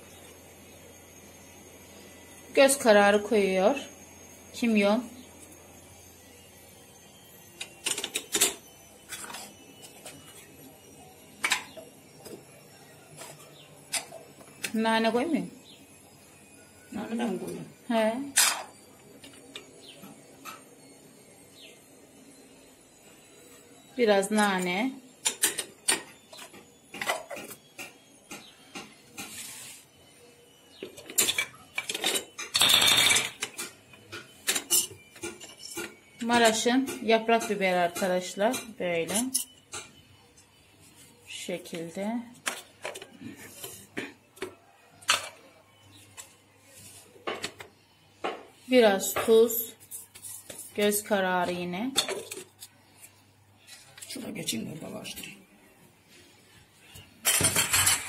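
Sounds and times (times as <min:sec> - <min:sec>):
utensils and containers clinking: 0:07.5 - 0:15.5, 0:16.8 - 0:20.7, 0:24.0 - 0:29.7, 0:30.7 - 0:40.1, 0:41.3 - 0:55.4, 0:57.0 - 0:58.0.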